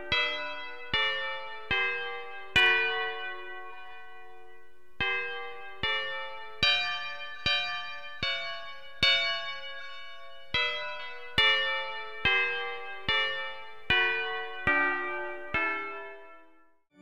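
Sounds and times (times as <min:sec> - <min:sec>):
church bells ringing: 0:00.0 - 0:16.6.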